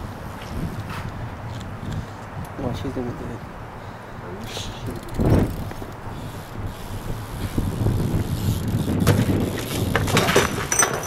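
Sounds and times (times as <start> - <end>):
bike crashing onto asphalt: 8.9 - 11.0.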